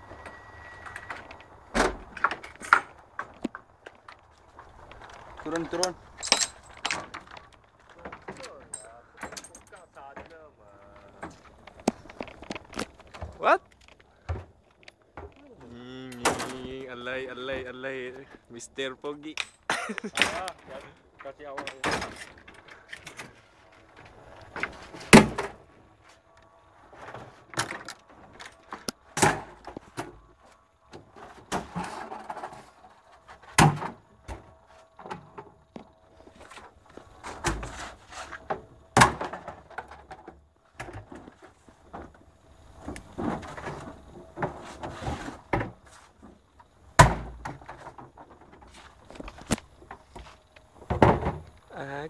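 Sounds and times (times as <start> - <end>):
rustling and clatter: 0.0 - 15.6, 19.3 - 51.7
sharp knocks and thumps: 42.8 - 51.7.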